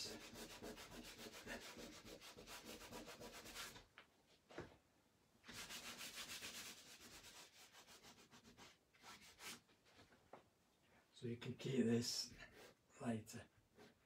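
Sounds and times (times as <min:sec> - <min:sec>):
cloth rubbing on paper: 0:00.0 - 0:03.8, 0:05.4 - 0:10.1.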